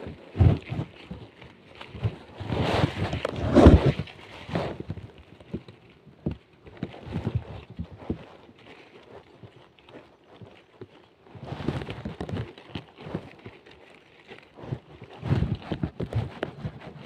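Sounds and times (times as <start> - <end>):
dry leaves rustling: 7.5 - 15.2.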